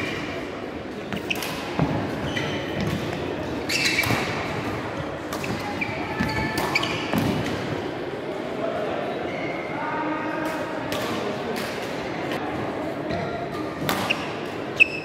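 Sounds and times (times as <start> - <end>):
shoe squeaks on court floor: 1.1 - 1.6, 2.2 - 3.0, 3.6 - 4.4, 5.4 - 7.2, 14.1 - 15.0
racket striking shuttlecock: 13.8 - 14.3.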